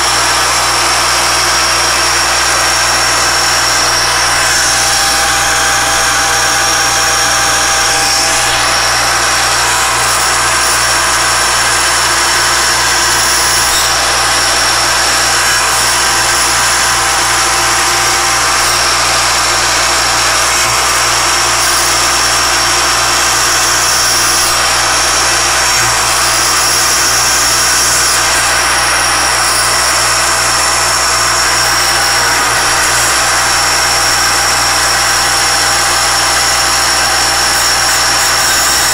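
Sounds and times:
milling machine whining: 0:00.0 - 0:38.9.

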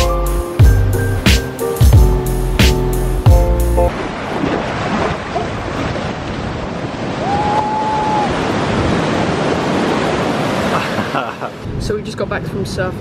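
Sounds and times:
music with a beat: 0:00.0 - 0:03.9
breaking surf: 0:03.9 - 0:11.7.

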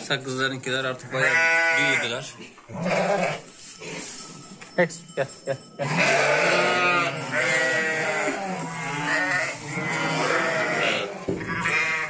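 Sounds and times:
sheep bleating: 0:01.1 - 0:03.5, 0:05.8 - 0:12.0.

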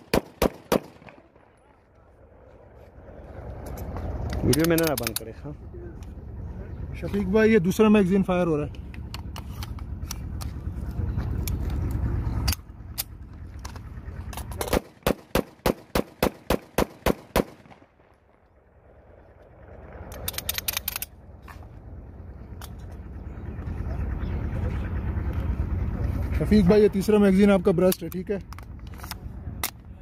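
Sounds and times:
pistol firing rapid shots: 0:00.0 - 0:01.2, 0:14.7 - 0:17.8.

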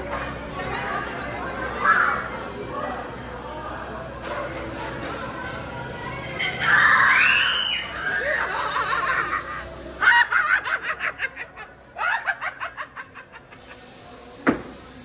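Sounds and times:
cackling laughter: 0:08.3 - 0:13.8.

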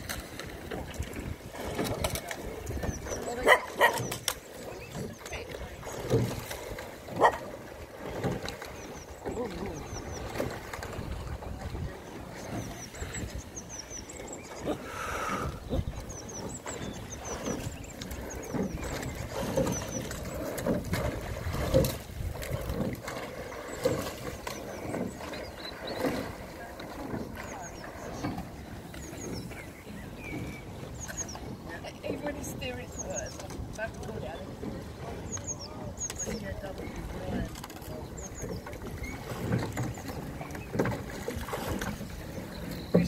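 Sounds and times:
oar blades splashing water: 0:00.0 - 0:43.0
dog barking: 0:03.4 - 0:04.1, 0:07.2 - 0:07.4
small birds chirping: 0:12.1 - 0:20.5, 0:23.6 - 0:26.3, 0:27.3 - 0:33.4.

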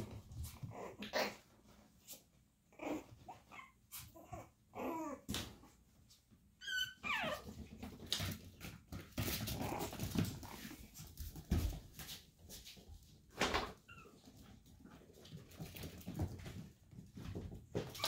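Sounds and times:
puppy whining: 0:00.1 - 0:01.6, 0:02.6 - 0:05.8, 0:06.5 - 0:08.2, 0:13.7 - 0:14.6, 0:17.7 - 0:18.0
puppies scuffling and knocking: 0:05.3 - 0:18.0
puppy yipping: 0:06.6 - 0:07.6.

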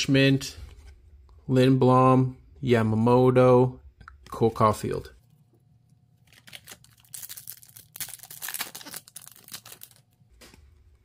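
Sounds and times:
wrapper crinkling and tearing: 0:06.2 - 0:10.2.

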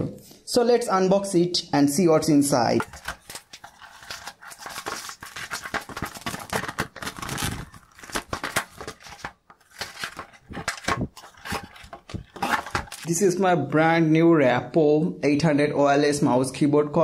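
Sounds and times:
tape and cardboard ripping: 0:02.8 - 0:13.1.

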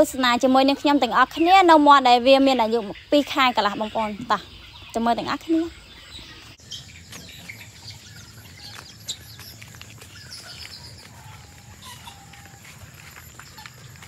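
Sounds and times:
chickens chirping and peeping: 0:02.4 - 0:14.0
lower bird call: 0:04.2 - 0:14.0.

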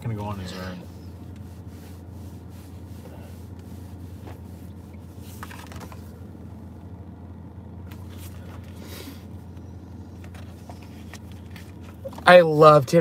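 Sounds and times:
low room hum: 0:00.0 - 0:13.0
soft rustles and handling noises: 0:07.8 - 0:12.3.

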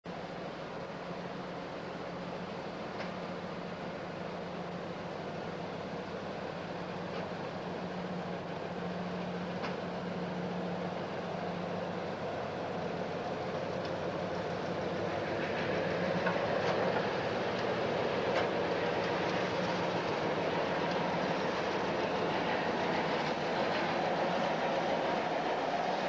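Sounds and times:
diesel locomotive engine humming: 0:00.1 - 0:26.0
wheels clicking: 0:11.0 - 0:26.0.

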